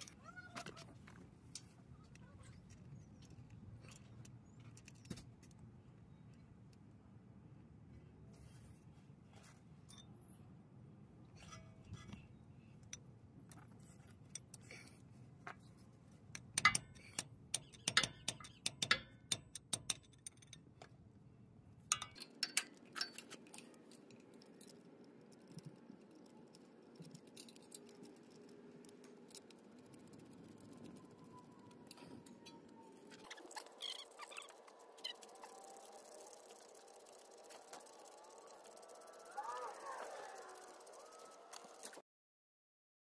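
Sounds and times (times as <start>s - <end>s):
metal parts clinking and tapping: 16.3s - 20.9s, 21.8s - 39.3s.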